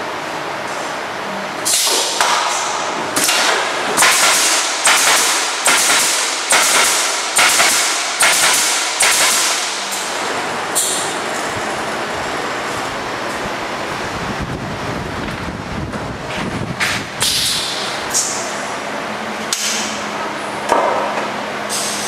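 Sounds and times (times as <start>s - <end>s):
machine running noise: 0.0s - 22.0s
pneumatic nailer shots with hiss: 1.6s - 10.1s, 16.9s - 18.4s, 21.7s - 22.0s.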